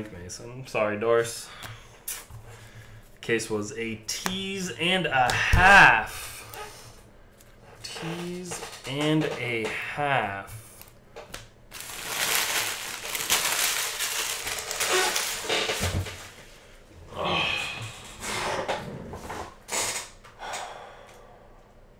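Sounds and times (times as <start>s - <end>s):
foil wrappers crinkling: 10.6s - 16.4s.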